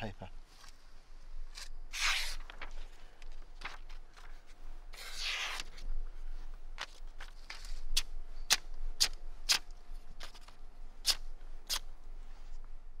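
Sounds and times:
knife slicing paper: 1.9s - 2.7s, 5.0s - 5.8s.

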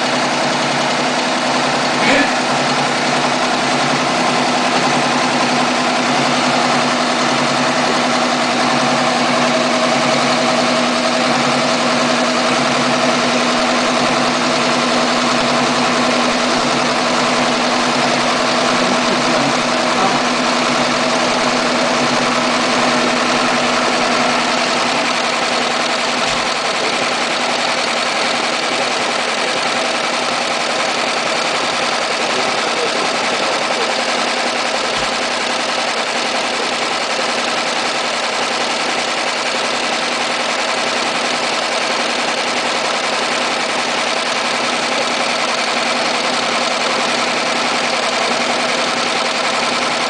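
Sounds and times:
constant machine hum: 0.0s - 50.0s
embroidery machine whirring: 0.0s - 50.0s.

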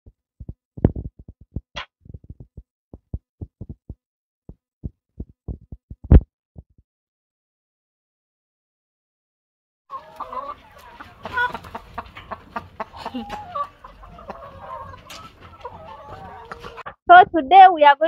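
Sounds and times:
low thumps and knocks: 0.4s - 4.0s, 5.2s - 6.2s.

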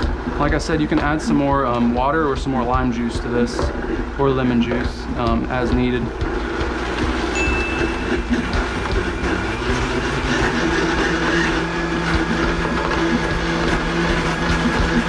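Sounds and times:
blender running: 5.3s - 15.0s.

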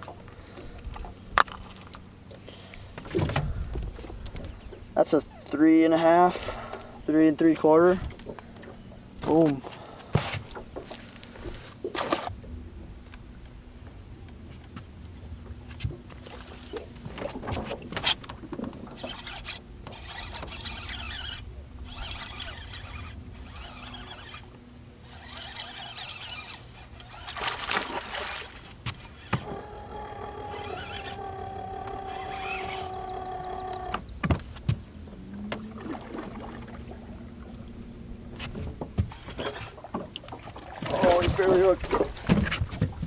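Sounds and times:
electric trolling motor whirring: 15.4s - 42.1s
fishing rod and reel clicks: 16.1s - 34.1s.

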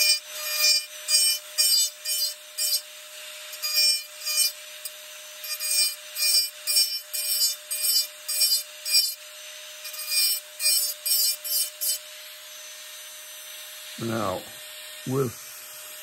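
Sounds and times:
bit grinding wood: 0.0s - 12.6s
rotary tool whine: 0.0s - 16.0s.

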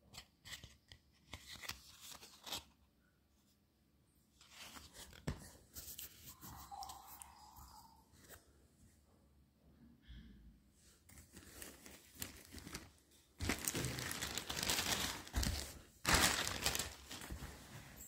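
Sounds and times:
packaging crinkling and rustling: 11.1s - 18.0s.

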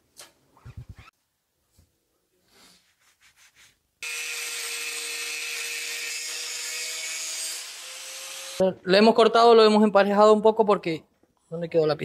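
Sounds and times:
power tool cutting: 4.0s - 8.6s.

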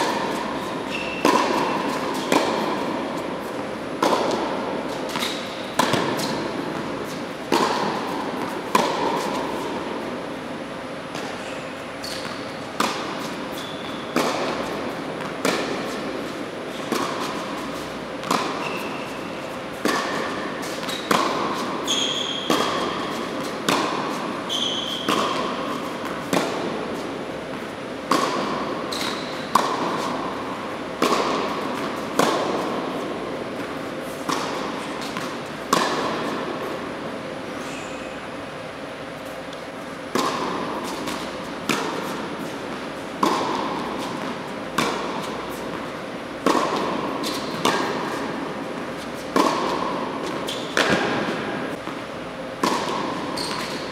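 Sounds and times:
tennis balls bouncing on court: 0.0s - 11.4s, 12.0s - 37.4s, 39.1s - 53.9s
tennis balls struck by rackets: 0.0s - 37.5s, 38.4s - 53.9s
shoes squeaking on court: 0.2s - 10.1s, 11.2s - 27.6s, 28.4s - 30.4s, 37.6s - 38.3s, 46.7s - 48.3s, 48.9s - 52.1s, 52.7s - 53.9s.

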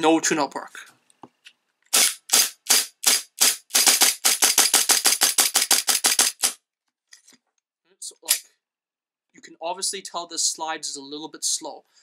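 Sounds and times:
airsoft pistol firing sharp cracks: 1.9s - 6.6s.

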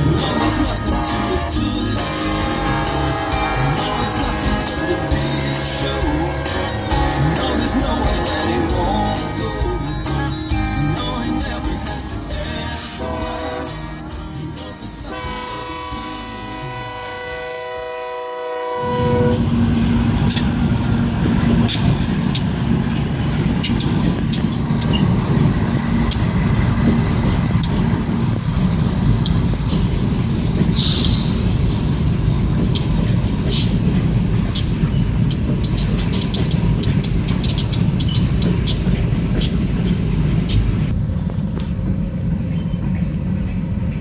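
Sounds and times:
diesel locomotive engine rumble: 0.0s - 44.0s
train wheels clicking over rail joints: 18.9s - 44.0s
short hiss: 30.7s - 32.0s.

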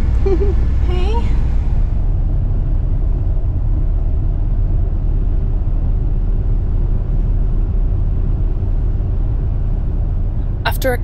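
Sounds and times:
road noise: 0.0s - 11.0s
vehicle engine rumble: 0.0s - 11.0s.

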